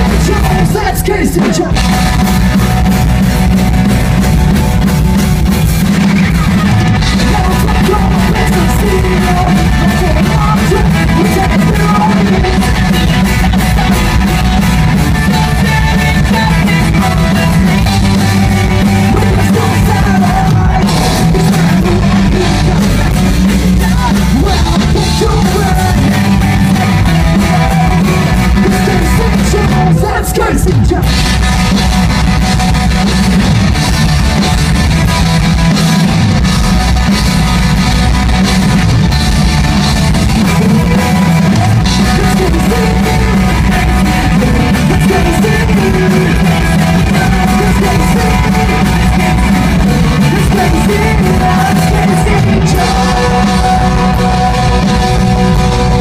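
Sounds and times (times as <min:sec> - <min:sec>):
person singing: 0:00.0 - 0:02.2, 0:07.0 - 0:31.2, 0:40.2 - 0:56.0
live rock band playing: 0:00.0 - 0:56.0.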